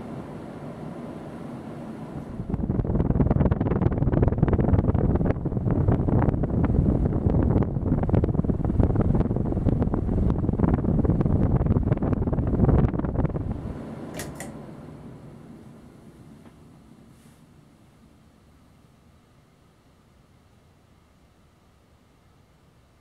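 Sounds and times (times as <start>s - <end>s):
ceiling fan airflow buffeting microphone: 0.0s - 23.0s
pull-chain switch clicks: 14.1s - 14.5s.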